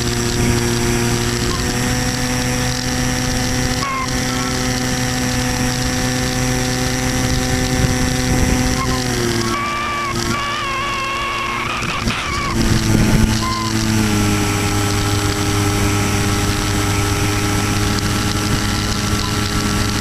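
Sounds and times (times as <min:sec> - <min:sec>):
model plane motor whine: 0:00.0 - 0:20.0.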